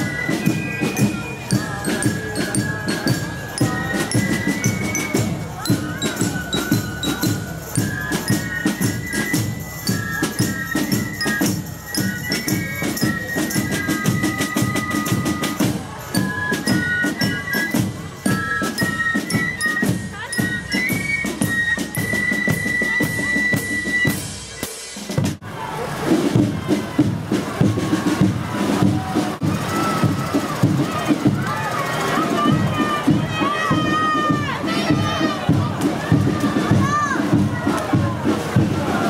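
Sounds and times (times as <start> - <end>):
shrill fifes playing: 0.0 - 24.7, 29.1 - 37.4
drums bass drum and cymbals: 0.0 - 39.0.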